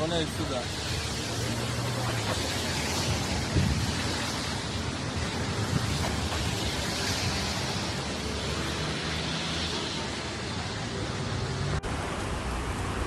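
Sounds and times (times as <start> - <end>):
heavy rain hissing: 0.0 - 13.0
wind rumble on microphone: 1.0 - 7.7.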